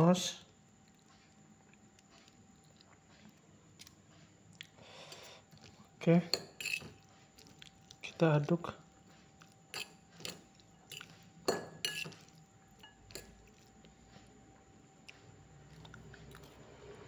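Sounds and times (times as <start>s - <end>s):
utensil clinking against dish: 6.2s - 7.0s, 9.7s - 13.4s.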